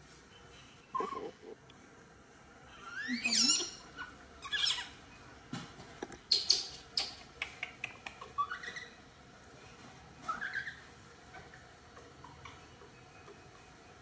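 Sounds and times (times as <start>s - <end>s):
baby monkey squealing: 1.0s - 1.3s, 2.7s - 5.0s, 8.2s - 9.0s, 10.3s - 10.8s.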